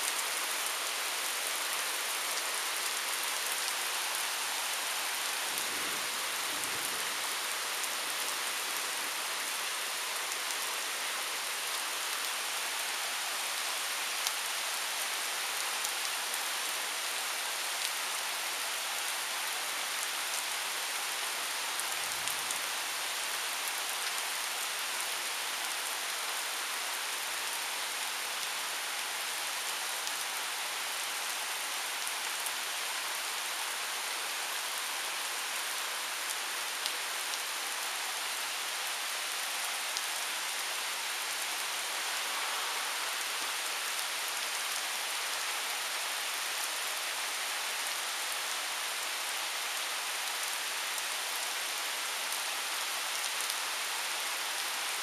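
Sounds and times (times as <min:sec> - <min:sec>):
heavy rain pouring: 0:00.1 - 0:16.7, 0:37.3 - 0:52.4.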